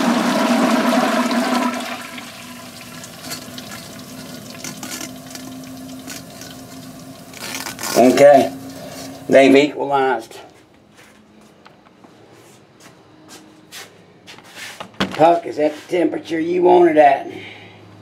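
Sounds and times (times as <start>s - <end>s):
liquid nitrogen boiling and fizzing: 0.0s - 9.6s.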